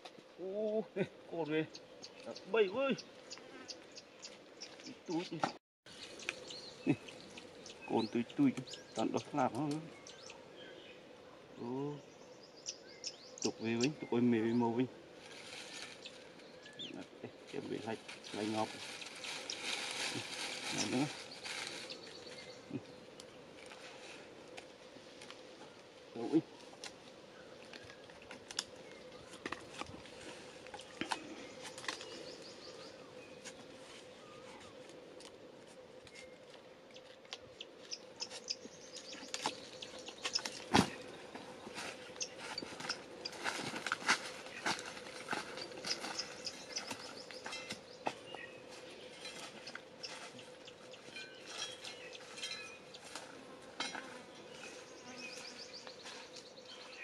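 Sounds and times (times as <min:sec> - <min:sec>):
insect hum: 0:00.0 - 0:57.0
bird chirps: 0:01.4 - 0:11.0, 0:12.0 - 0:14.7, 0:36.1 - 0:41.2, 0:42.0 - 0:43.4, 0:45.5 - 0:53.1
faint bird chirps: 0:11.6 - 0:14.8, 0:30.8 - 0:34.9, 0:36.1 - 0:41.0
bark and twigs cracking: 0:17.5 - 0:22.5, 0:24.4 - 0:25.9, 0:26.6 - 0:32.5, 0:34.6 - 0:54.8.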